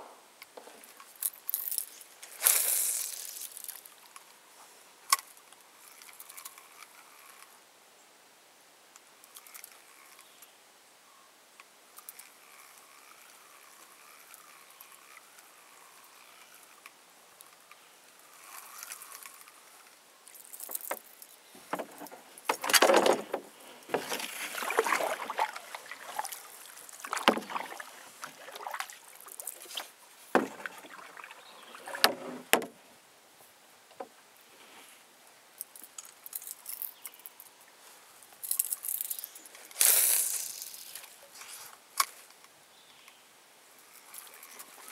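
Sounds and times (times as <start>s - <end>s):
paddle knocking against hull: 21.6s - 26.3s, 27.0s - 28.9s, 30.3s - 32.8s
paddle strokes splashing water: 21.7s - 32.7s.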